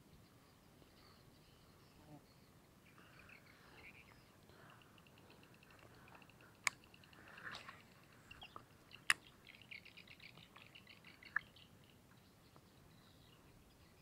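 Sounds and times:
sharp clicks: 5.6s - 7.2s.

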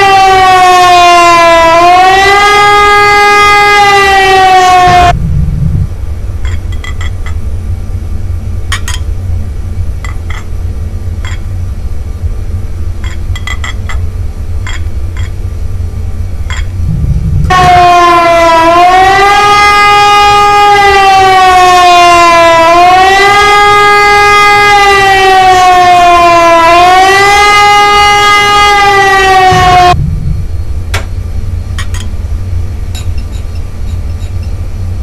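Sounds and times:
siren-like wail: 0.0s - 5.9s, 16.5s - 30.9s
low rumble: 4.5s - 19.2s, 29.0s - 35.0s.

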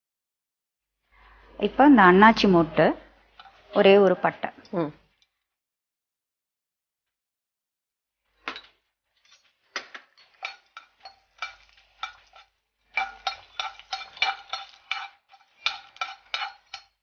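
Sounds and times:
metal spoon clinking on cookware: 9.3s - 17.0s.

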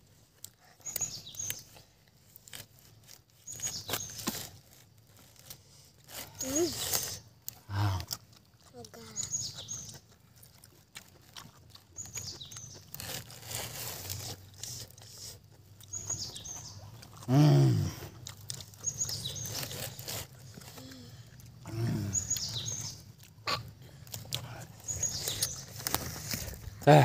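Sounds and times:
bird chirping: 0.6s - 1.8s, 3.1s - 4.5s, 9.0s - 10.2s, 11.8s - 23.3s, 23.9s - 27.0s.

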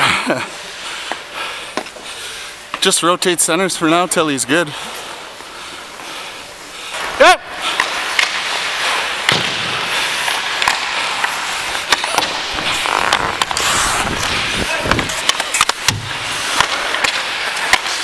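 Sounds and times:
skates scraping on ice: 4.8s - 18.0s
hockey sticks and puck clacking: 6.9s - 18.0s.

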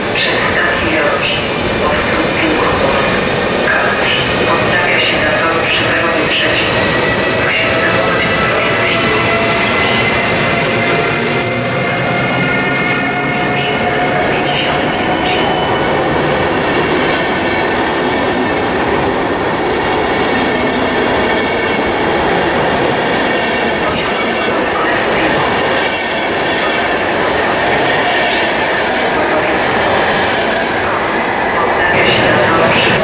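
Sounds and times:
train wheels rumbling on rail: 0.0s - 33.0s
high wheel squeal: 12.9s - 16.6s.

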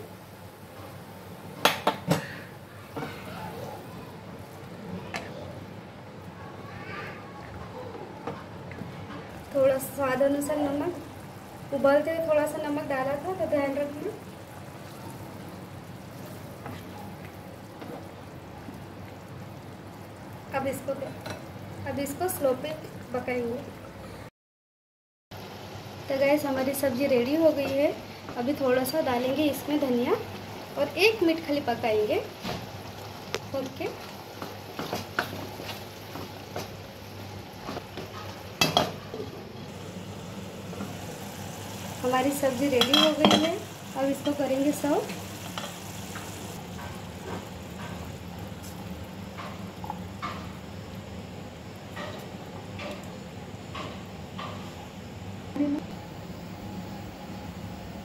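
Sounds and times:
gravy sizzling while stirred: 8.7s - 23.5s, 25.4s - 55.2s
curry bubbling in a pan: 8.7s - 23.9s, 25.4s - 53.7s.

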